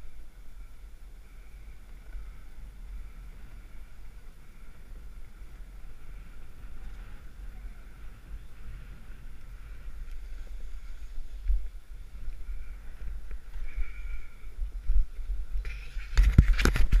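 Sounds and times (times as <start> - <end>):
wind buffeting microphone: 0.0 - 17.0
skis sliding on snow: 1.3 - 14.3.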